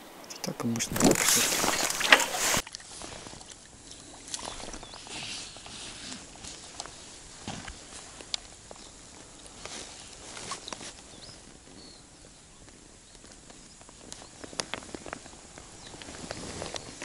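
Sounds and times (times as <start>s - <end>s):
fish splashing at water surface: 0.9s - 2.7s.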